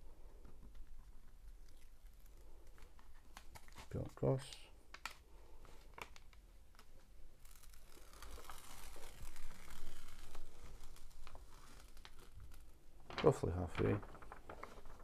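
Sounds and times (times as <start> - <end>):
release paper peeling off glue: 7.4 - 15.0
paper handling clicks: 7.6 - 15.0.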